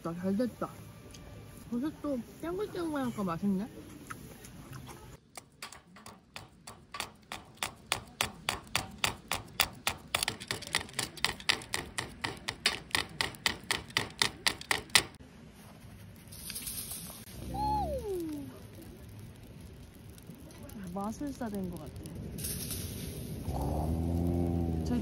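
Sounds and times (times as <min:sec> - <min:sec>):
metal tongs tapping log: 0:05.3 - 0:15.2.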